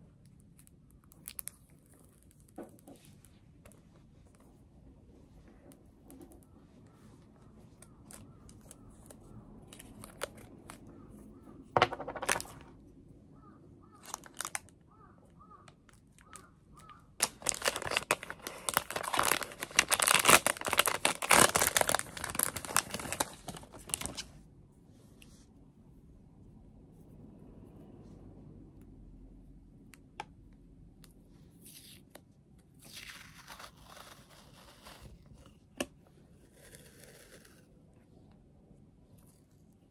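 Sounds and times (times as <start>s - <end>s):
plastic package crinkling: 12.0s - 12.6s, 14.0s - 14.7s, 16.2s - 24.3s.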